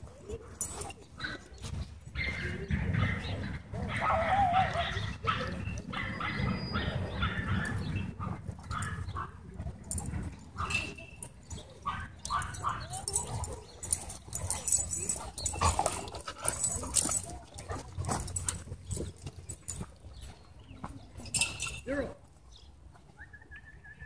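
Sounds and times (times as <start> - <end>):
dogs whining and growling: 12.2 - 19.8.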